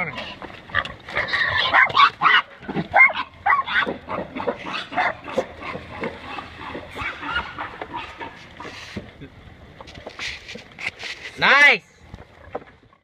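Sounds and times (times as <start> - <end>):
pigs squealing and grunting: 0.2 - 8.4.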